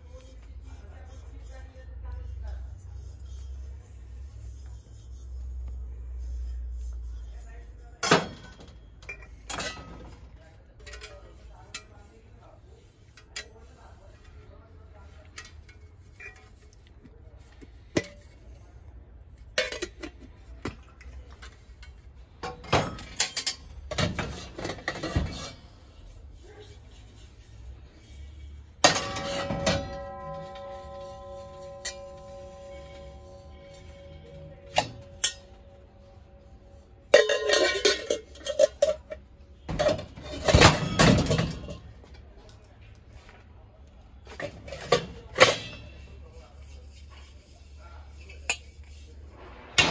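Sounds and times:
brass vessels clinking and knocking: 0:19.5 - 0:20.3, 0:28.8 - 0:41.9, 0:44.4 - 0:49.1
metal rattling and scraping: 0:21.4 - 0:26.2, 0:26.9 - 0:42.1.

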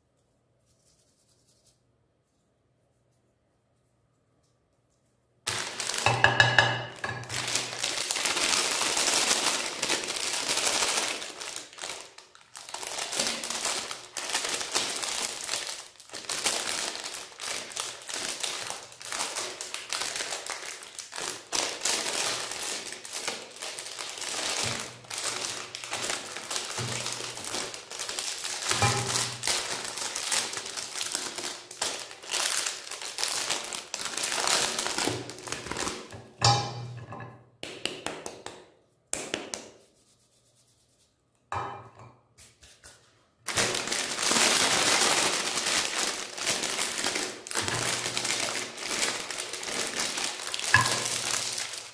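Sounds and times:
plastic wrapper crinkling: 0:05.5 - 0:36.4, 0:43.4 - 0:51.9.

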